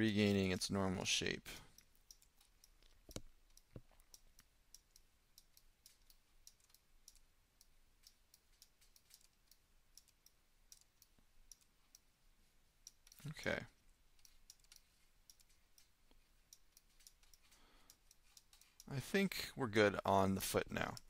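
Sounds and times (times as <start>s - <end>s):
computer mouse clicking: 1.8s - 12.1s, 14.2s - 18.9s.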